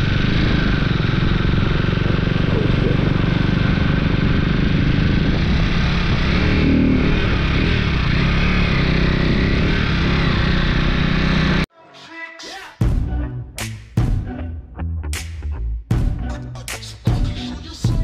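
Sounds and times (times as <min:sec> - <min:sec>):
motorcycle engine running: 0:00.0 - 0:11.7.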